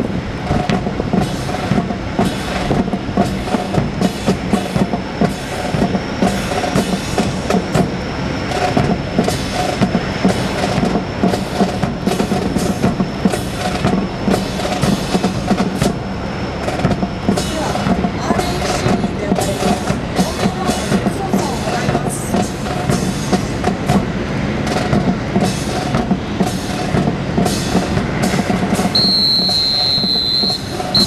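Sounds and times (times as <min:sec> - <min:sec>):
steady hum: 0:00.0 - 0:31.0.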